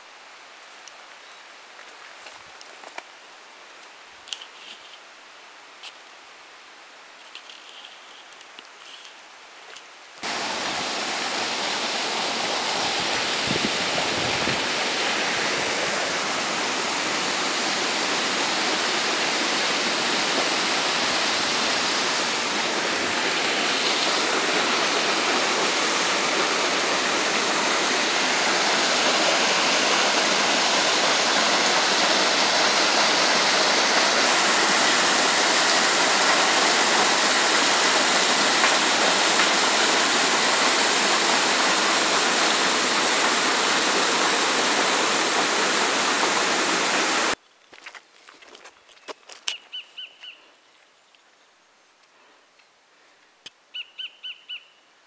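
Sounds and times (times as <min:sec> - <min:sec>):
stream water rushing over rocks: 0:10.2 - 0:47.4.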